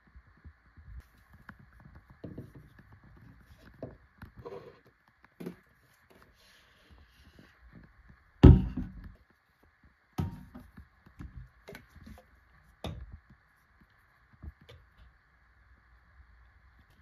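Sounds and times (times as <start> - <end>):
plastic bottles knocking on shelf: 8.4 - 9.2.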